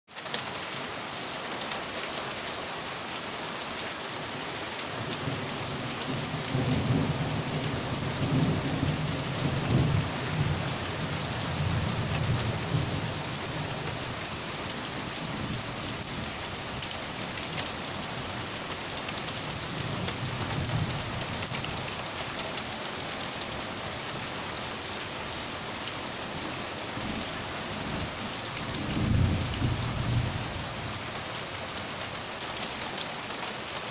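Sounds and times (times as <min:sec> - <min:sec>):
rain on street and cars: 0:00.1 - 0:33.9
low thunder rumbles: 0:06.0 - 0:13.7, 0:28.7 - 0:30.6.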